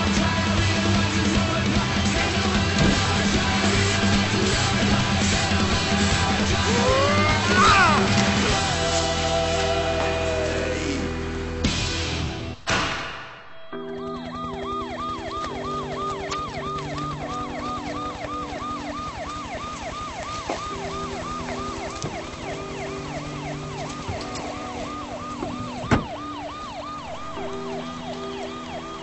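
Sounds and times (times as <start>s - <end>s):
police siren yelping: 4.1s - 8.5s, 13.7s - 29.0s
sharp knock: 12.6s - 13.4s.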